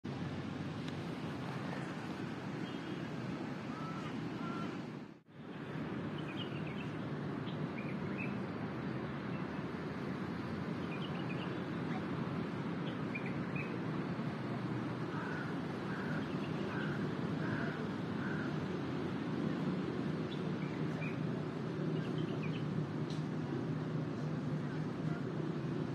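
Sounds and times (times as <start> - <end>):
small birds chirping: 6.1 - 8.4, 10.7 - 12.1, 12.8 - 13.9, 15.1 - 18.6, 20.2 - 22.9.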